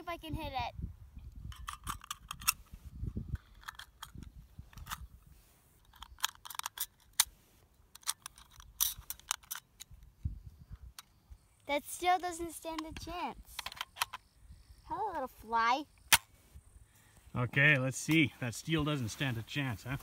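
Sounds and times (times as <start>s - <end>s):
metallic clicks and snaps: 1.3s - 2.7s, 3.3s - 5.1s, 5.8s - 11.2s, 12.7s - 14.3s.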